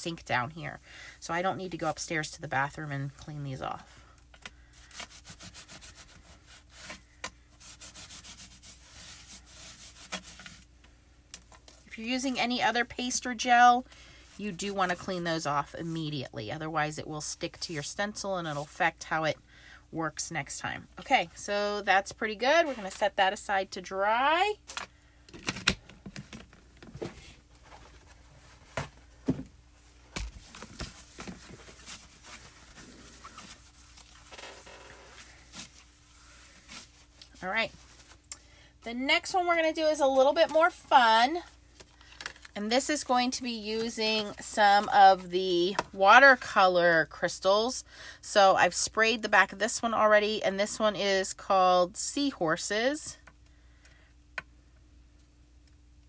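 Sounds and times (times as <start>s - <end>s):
wet wipe rubbing: 4.8s - 10.7s, 29.8s - 38.2s
wet wipe rubbing on plastic: 4.8s - 10.7s.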